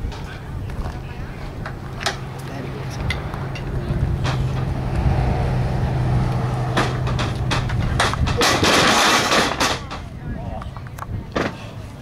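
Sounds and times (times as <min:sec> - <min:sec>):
loud crash of bodies: 0:06.7 - 0:10.0
sharp knocks and thuds: 0:06.7 - 0:10.1.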